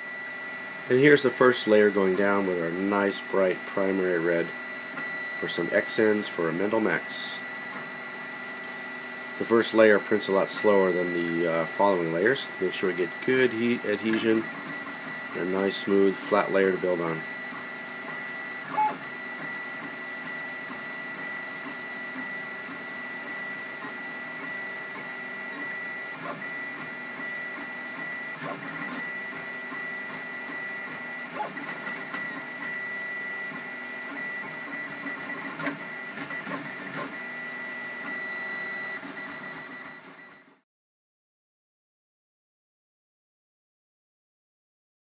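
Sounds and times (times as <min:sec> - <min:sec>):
stepper motors whining: 0:09.4 - 0:40.4.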